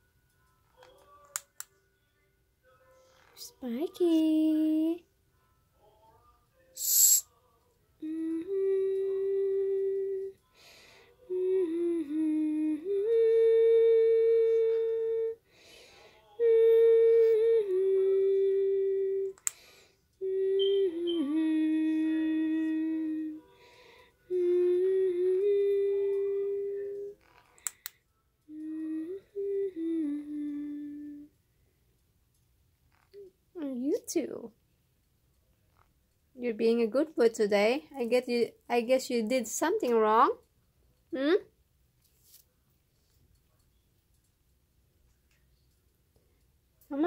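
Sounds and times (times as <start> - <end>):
woman humming a slow tune: 2.6 - 5.0, 6.8 - 27.9, 28.5 - 31.4, 32.9 - 33.7, 41.1 - 41.5.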